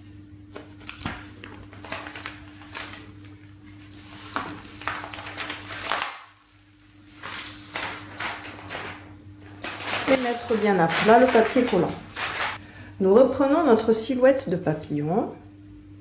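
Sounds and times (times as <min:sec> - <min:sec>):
plastic film rustling: 0:00.9 - 0:12.6.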